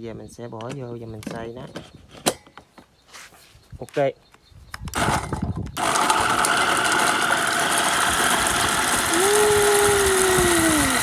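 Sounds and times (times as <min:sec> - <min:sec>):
blender motor running: 0:05.8 - 0:11.0.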